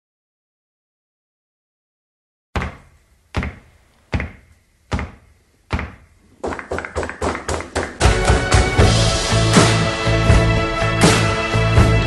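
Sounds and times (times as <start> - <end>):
heavy percussive hits: 5.9 - 11.4
soundtrack music: 7.9 - 12.0.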